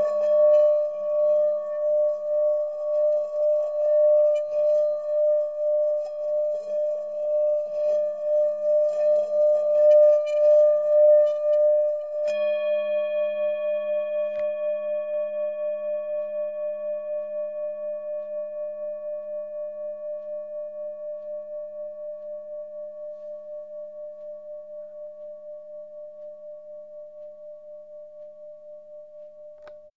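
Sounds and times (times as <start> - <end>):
pulsing electric viola tone: 0.0 - 27.6.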